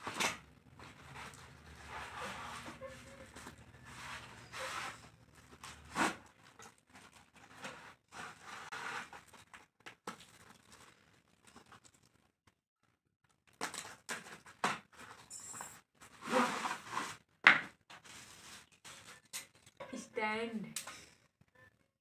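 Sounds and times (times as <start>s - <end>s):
cardboard scraping: 0.0s - 9.6s, 16.0s - 17.3s, 17.9s - 19.2s
plastic wrap crinkling: 0.0s - 12.4s, 16.0s - 19.8s.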